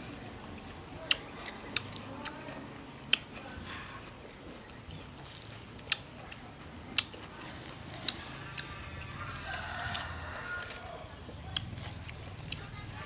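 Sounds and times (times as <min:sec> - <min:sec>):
chewing smacks and clicks: 0:00.5 - 0:02.4, 0:03.0 - 0:03.5, 0:04.5 - 0:13.0
fruit being peeled: 0:04.6 - 0:12.7.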